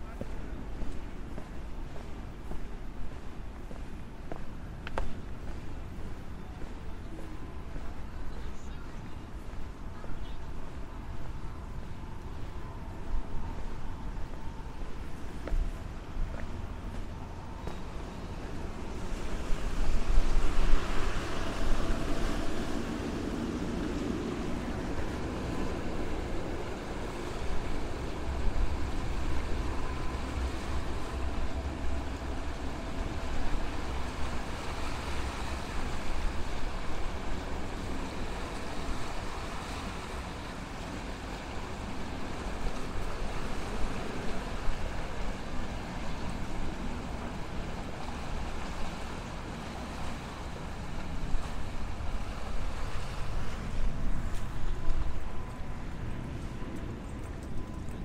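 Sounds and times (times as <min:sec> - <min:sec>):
wind rumbling on microphone: 0:00.0 - 0:58.0
sea waves washing on rocks: 0:18.0 - 0:55.3.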